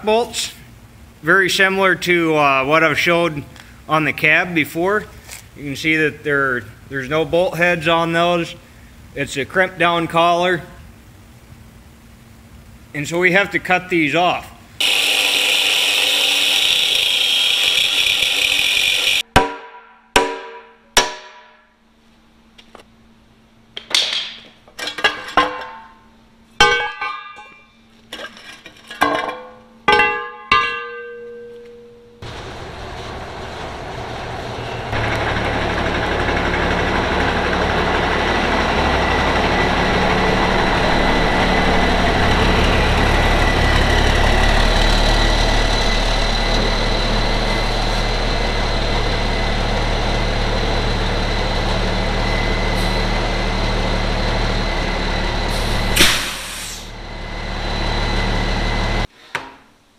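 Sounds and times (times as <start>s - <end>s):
angle grinder cutting steel: 14.8s - 19.2s, 34.8s - 59.1s
diesel truck engine running: 32.2s - 59.1s.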